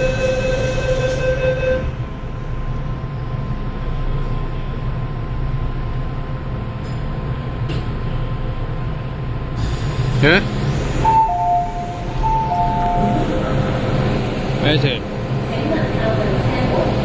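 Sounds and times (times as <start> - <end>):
train door warning tone: 0.0 - 2.1, 11.0 - 13.9
low hum of train: 0.0 - 17.0.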